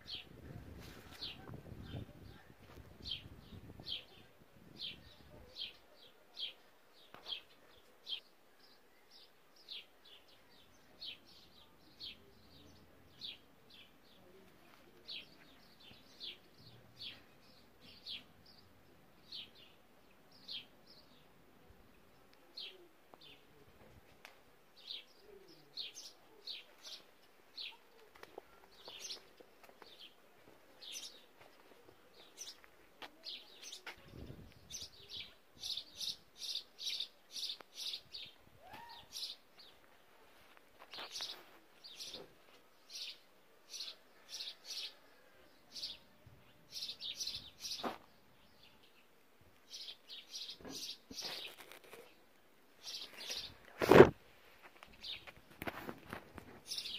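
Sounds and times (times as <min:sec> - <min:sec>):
faint outdoor hush: 0:00.0 - 0:56.9
small birds chirping: 0:00.0 - 0:56.9.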